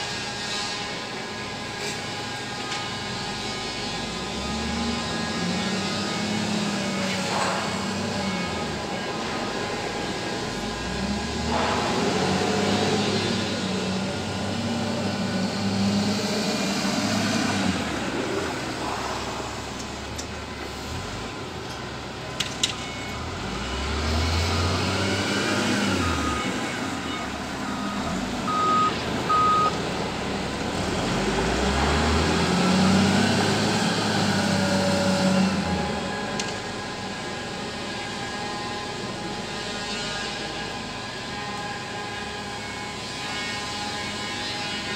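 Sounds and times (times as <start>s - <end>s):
wheel loader diesel engine revving: 1.2s - 42.9s
backup alarm beeping: 25.9s - 29.8s.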